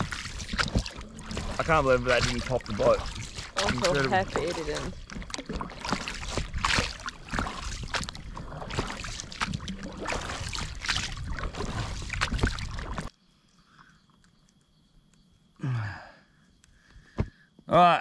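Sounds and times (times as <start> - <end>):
boat knocks and rattles: 0.0 - 13.1
oars splashing: 0.0 - 13.1.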